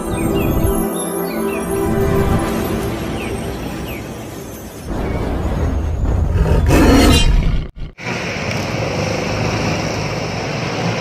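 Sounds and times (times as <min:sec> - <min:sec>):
street traffic noise: 0:00.0 - 0:06.7, 0:07.8 - 0:11.0
roar sound effect: 0:06.0 - 0:08.1.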